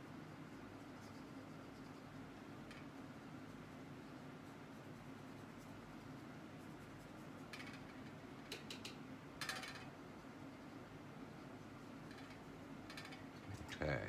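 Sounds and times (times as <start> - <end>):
paintbrush brushing on paper: 0.0 - 8.2
faint room hum: 0.0 - 14.0.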